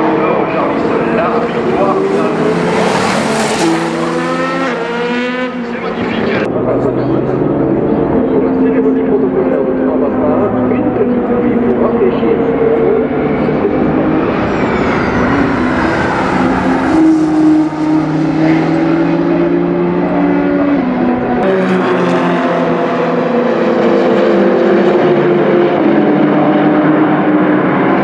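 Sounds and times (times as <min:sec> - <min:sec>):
race car engine at speed: 0:00.0 - 0:28.0
thinner engine note: 0:06.6 - 0:19.8.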